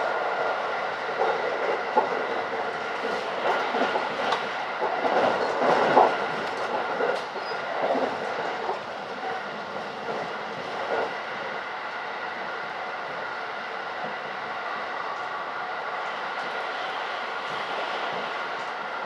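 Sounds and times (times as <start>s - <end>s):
train running rumble: 0.0s - 19.0s.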